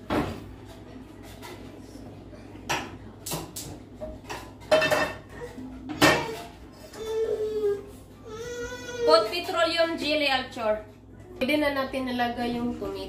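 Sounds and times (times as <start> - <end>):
pots and pans knocking: 4.0 - 6.5.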